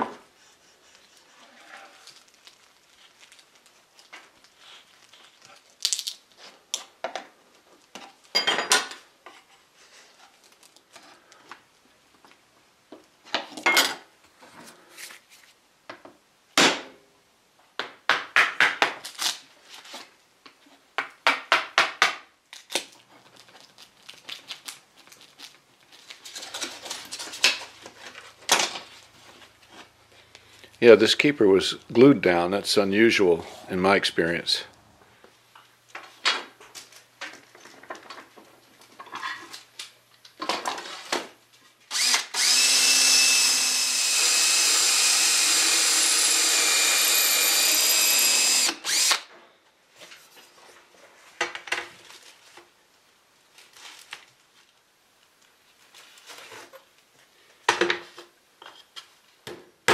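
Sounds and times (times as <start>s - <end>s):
metal tools scraping wood: 0.3s - 2.3s.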